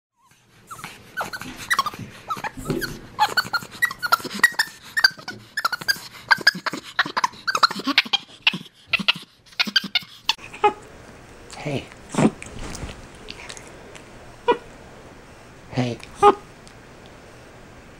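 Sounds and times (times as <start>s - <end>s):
monkey squeaking and chirping: 0.7s - 10.1s.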